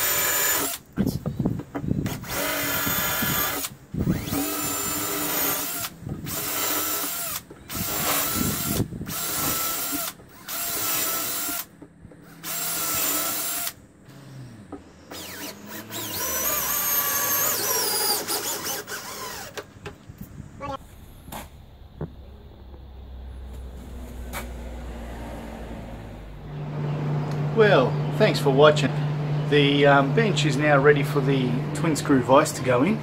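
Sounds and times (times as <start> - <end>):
cordless drill boring into wood: 0.0 - 0.8, 2.0 - 19.6.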